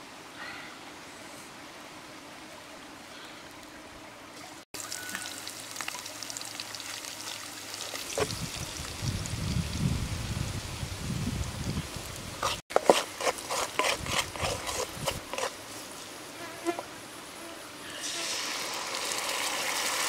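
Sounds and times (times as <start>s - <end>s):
steady low hiss: 14.9s - 19.5s
garlic sizzling in hot oil: 18.0s - 20.0s.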